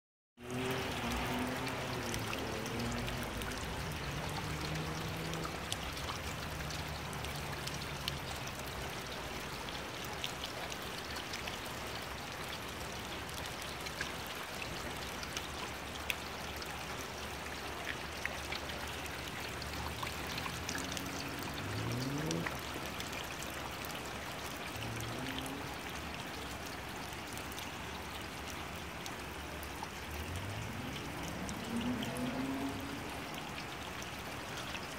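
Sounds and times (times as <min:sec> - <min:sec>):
steady rain: 0:00.4 - 0:34.9
water dripping: 0:00.4 - 0:34.9
water running: 0:18.8 - 0:22.9, 0:30.0 - 0:33.0.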